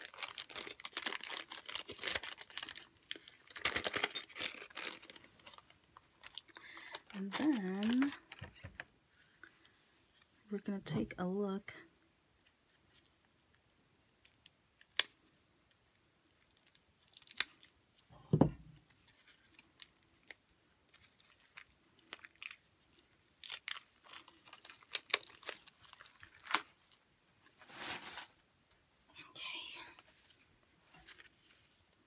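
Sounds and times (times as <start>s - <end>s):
plastic wrap crinkling and tearing: 0.0s - 3.3s, 4.2s - 8.4s, 12.7s - 18.1s, 18.8s - 27.0s
dull thump: 18.3s - 18.6s.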